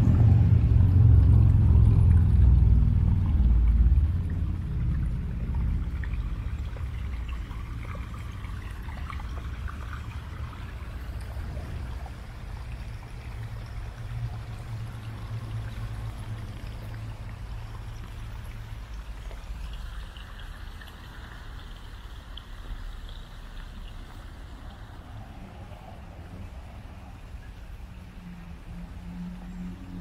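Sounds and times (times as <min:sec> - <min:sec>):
steady low rumble: 0:00.0 - 0:22.1
stream splashing over rocks: 0:00.0 - 0:30.0.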